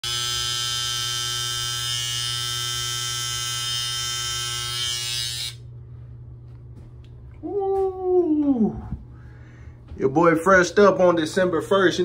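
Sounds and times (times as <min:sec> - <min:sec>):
electric hair trimmer buzzing: 0:00.0 - 0:05.6.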